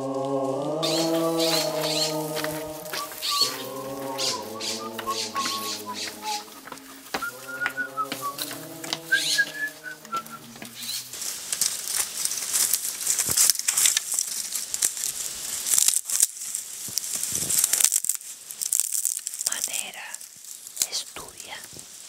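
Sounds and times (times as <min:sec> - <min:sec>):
rustling and crackling noise: 0:00.0 - 0:22.0
whistle-like melody: 0:02.9 - 0:10.5.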